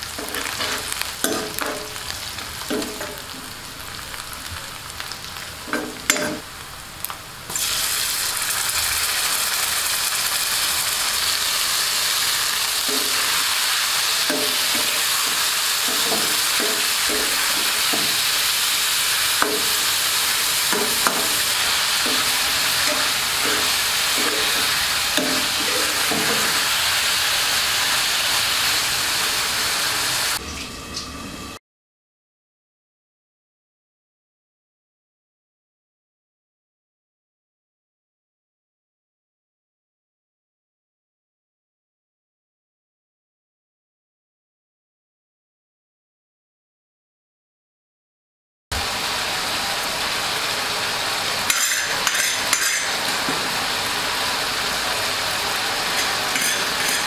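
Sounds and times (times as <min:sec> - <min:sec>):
spatula scraping a pan: 0:00.0 - 0:02.1, 0:12.5 - 0:29.5, 0:51.5 - 0:53.5, 0:55.7 - 0:57.0
meat sizzling in hot oil: 0:00.0 - 0:31.1, 0:48.7 - 0:57.0.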